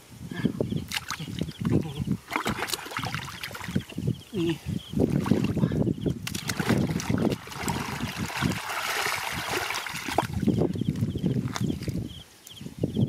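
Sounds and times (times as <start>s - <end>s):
water splashing: 0.9s - 4.0s, 5.0s - 12.0s
squelching mud: 0.9s - 12.1s.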